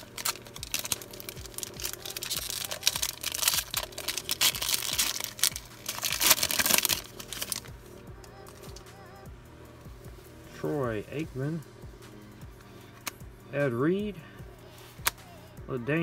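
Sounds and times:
foil wrapper crinkling and tearing: 0.0 - 7.7.

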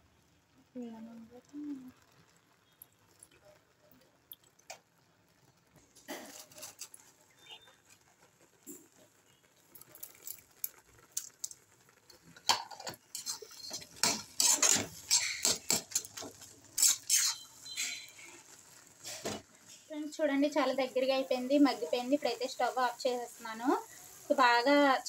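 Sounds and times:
metal spatula scraping pan: 6.1 - 7.8, 12.5 - 19.9.

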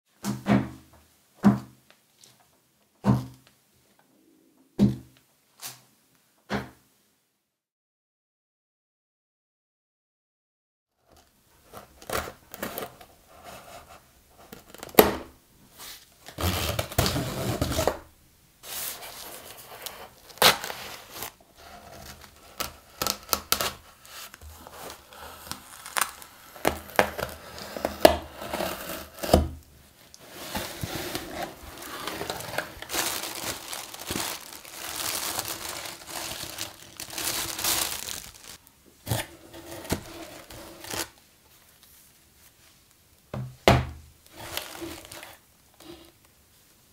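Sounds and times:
tape and cardboard tearing: 16.3 - 18.0, 19.5 - 29.6
knife cutting plastic strap: 21.9 - 29.6.

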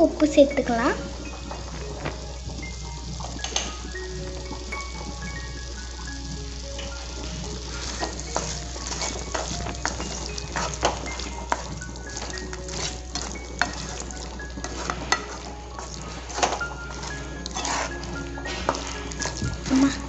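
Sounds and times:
meat sizzling in a pan: 0.0 - 20.0
wooden spatula scraping a pan: 7.3 - 20.0.

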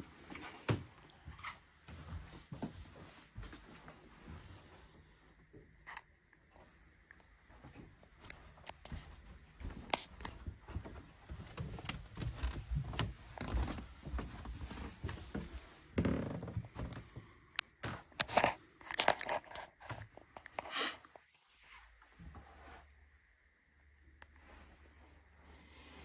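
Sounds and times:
footsteps: 7.5 - 18.5.

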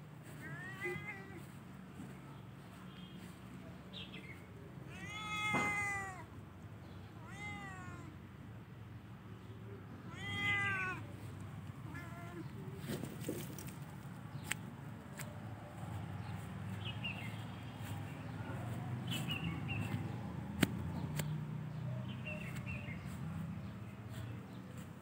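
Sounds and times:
low outdoor rumble: 0.0 - 25.0
songbird chirping: 0.3 - 4.8, 11.1 - 25.0
sharp clicks: 19.9 - 21.4.

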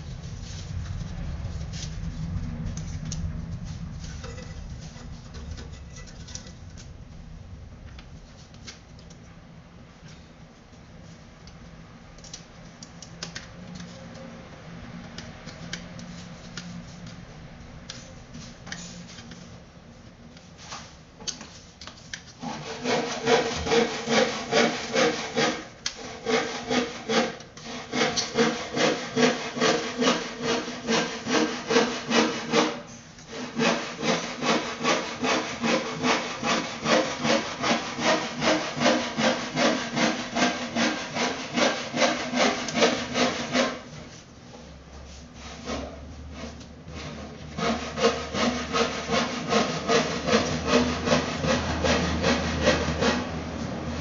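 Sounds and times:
back-and-forth rasping strokes: 22.4 - 44.0.

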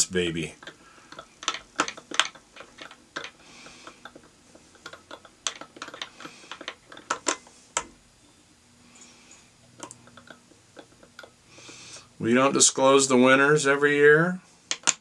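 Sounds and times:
fly-tying clicks and taps: 0.6 - 8.0, 9.3 - 11.8, 14.7 - 15.0.

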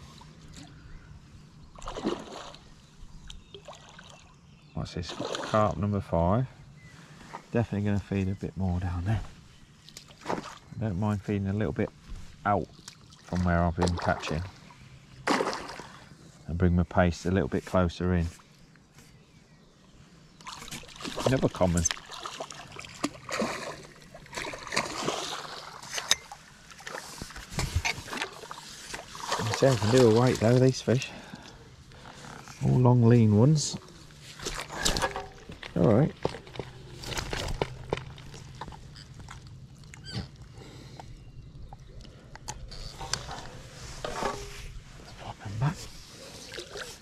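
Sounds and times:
fish splashing at water surface: 15.3 - 16.0.

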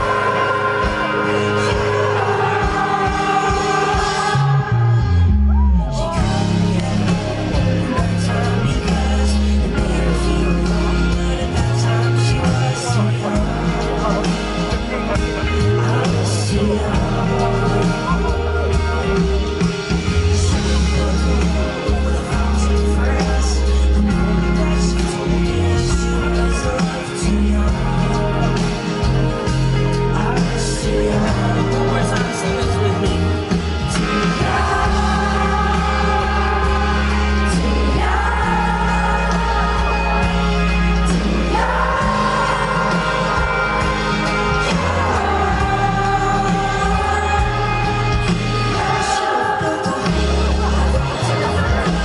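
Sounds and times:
group singing held notes: 0.0 - 5.3, 33.9 - 52.0
acoustic guitar: 0.0 - 52.0
bass: 0.0 - 52.0
live band playing pop song: 0.0 - 52.0
person singing: 0.0 - 52.0.

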